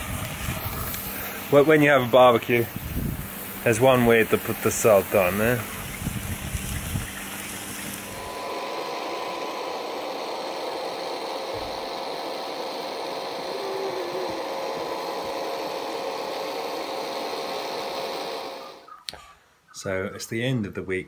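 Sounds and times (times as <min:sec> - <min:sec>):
bubble machine motor humming: 0:00.0 - 0:18.9.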